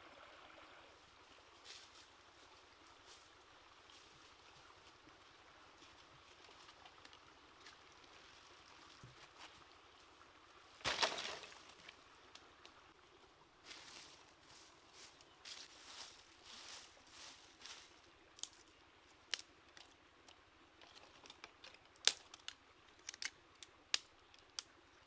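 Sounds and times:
stream trickling: 0.0s - 25.0s
firewood sticks clattering on ground: 10.8s - 11.9s
dry leaves rustling: 10.8s - 12.0s, 13.6s - 18.7s.

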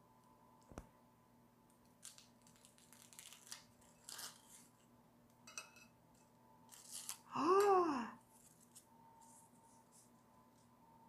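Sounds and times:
cookie cracking: 1.7s - 4.7s.

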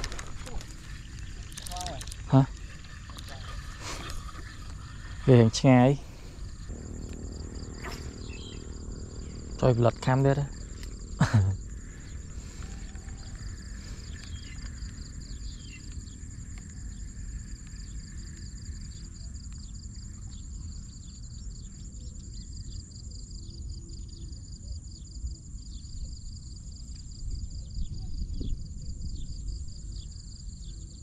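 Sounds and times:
insects trilling: 0.0s - 31.0s
low rumble: 2.5s - 19.2s.

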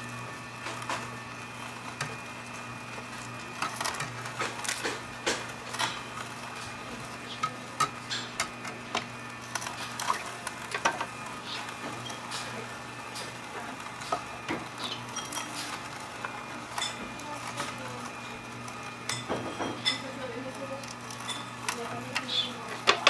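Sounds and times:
juicer motor hum: 0.0s - 23.0s
greens crackling and snapping: 0.6s - 19.3s.

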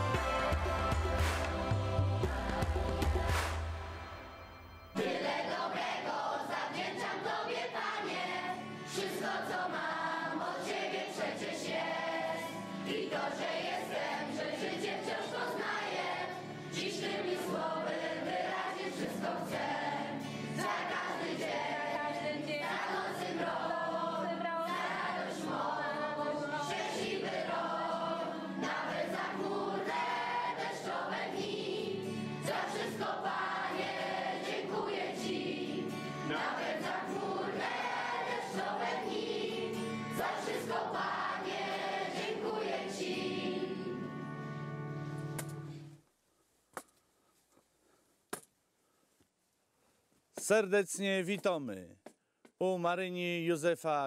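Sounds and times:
children and adults singing: 0.0s - 4.0s, 5.0s - 44.2s.

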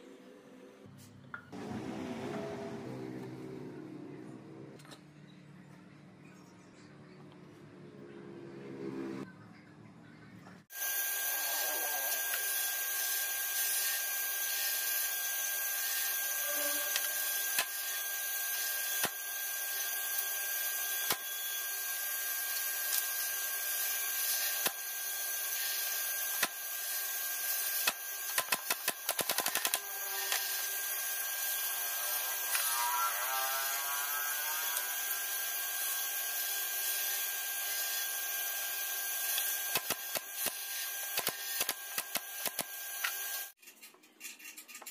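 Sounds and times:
nail gun firing: 27.8s - 30.5s, 39.6s - 42.8s.

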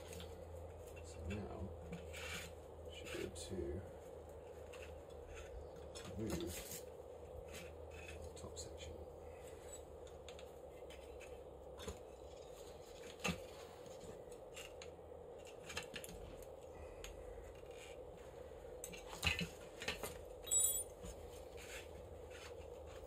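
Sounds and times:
small metal parts clinking: 18.8s - 21.1s.

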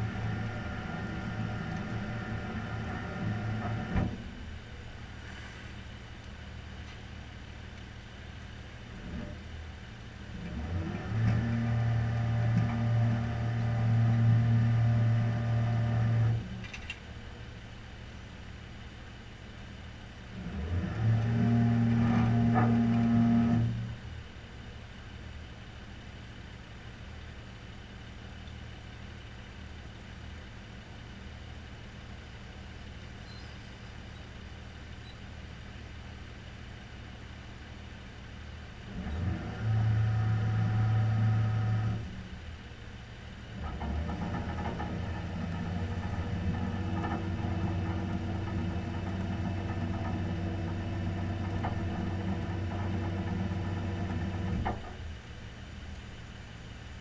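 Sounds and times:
tow truck engine revving: 0.0s - 4.1s, 10.3s - 16.6s, 20.3s - 24.0s, 38.8s - 42.4s, 43.3s - 55.8s.

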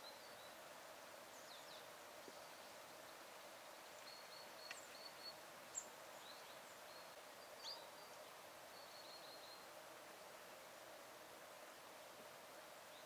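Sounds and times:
small songbirds chirping: 0.0s - 9.8s
low background hiss: 0.0s - 13.0s.

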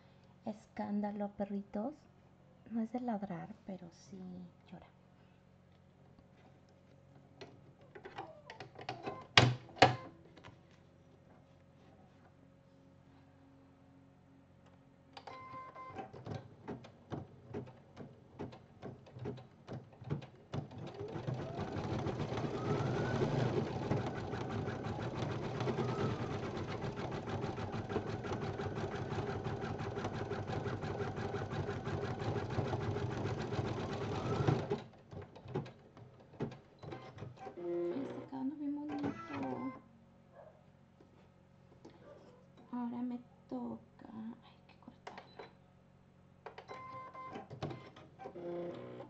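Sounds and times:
embroidery machine stitching: 15.9s - 35.8s.

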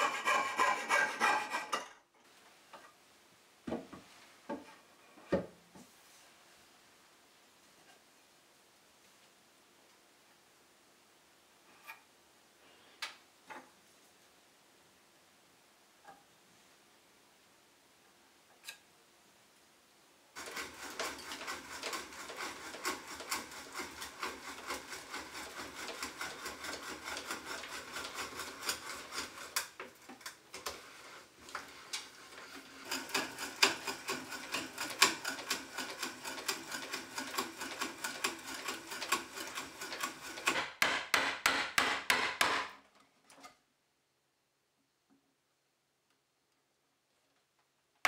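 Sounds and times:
sharp knocks: 40.6s - 42.8s.

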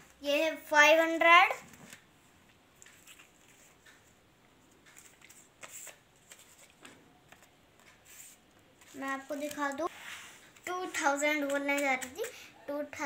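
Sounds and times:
paper banknotes rustling: 4.8s - 12.4s.

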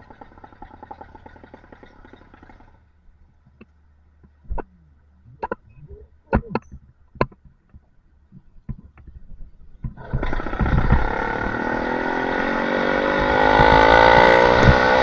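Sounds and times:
sharp knocks and clicks: 5.4s - 5.7s, 6.3s - 9.2s, 13.2s - 15.0s
motorbike engine low hum: 8.1s - 15.0s.

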